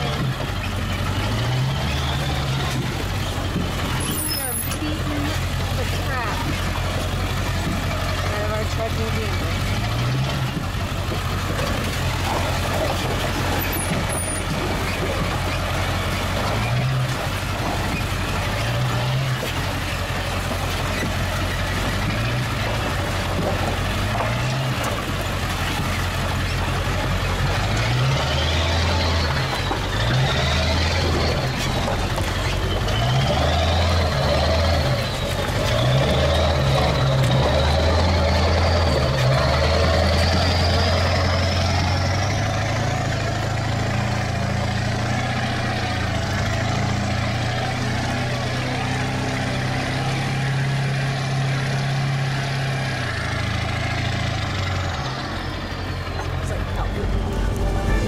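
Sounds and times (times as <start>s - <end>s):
tyres on stones: 0.0s - 41.2s
truck engine drone: 0.0s - 58.0s.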